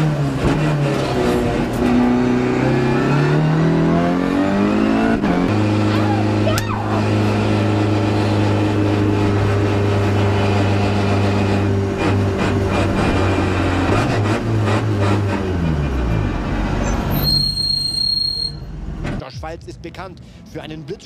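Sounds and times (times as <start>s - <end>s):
race car engine running: 0.0s - 16.5s.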